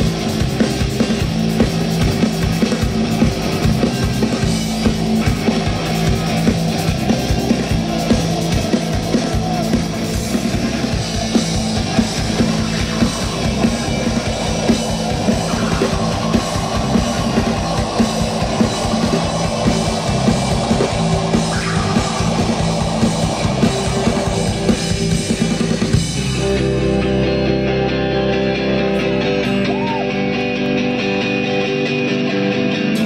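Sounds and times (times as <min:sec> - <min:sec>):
rock band playing loudly: 0:00.0 - 0:33.0
drum kit hitting hard: 0:00.1 - 0:26.6.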